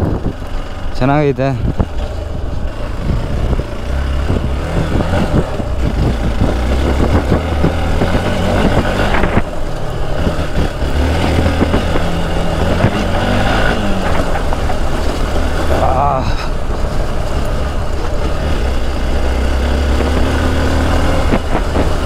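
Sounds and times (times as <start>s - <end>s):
dirt bike engine running: 0.0s - 22.0s.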